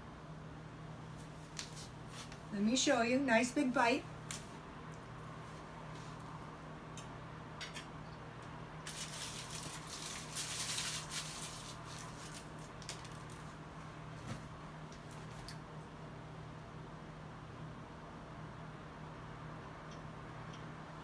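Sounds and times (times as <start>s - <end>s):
rustling of things handled: 1.1s - 2.5s, 8.8s - 15.6s.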